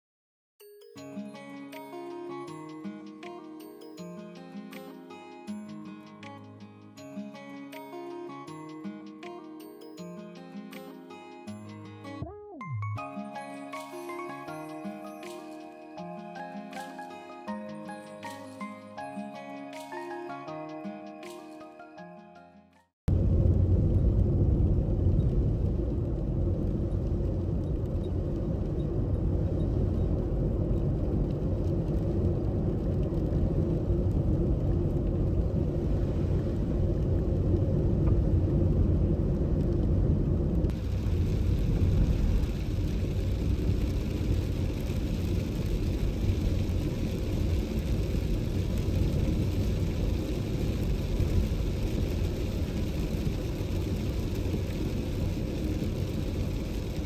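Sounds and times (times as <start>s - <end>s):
car driving road noise: 23.1s - 57.0s
steady hiss: 40.7s - 57.0s.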